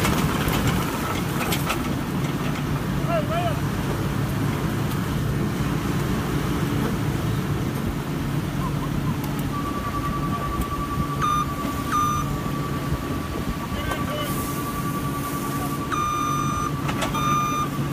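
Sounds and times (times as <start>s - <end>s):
loader engine running: 0.0s - 17.9s
steady high whine: 9.3s - 17.9s
short beeps: 9.5s - 17.9s.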